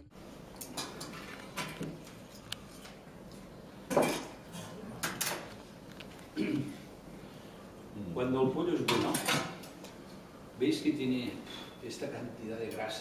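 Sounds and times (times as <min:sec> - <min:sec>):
utensils and dishes clinking: 0:00.6 - 0:03.0, 0:03.9 - 0:05.5, 0:08.9 - 0:09.8.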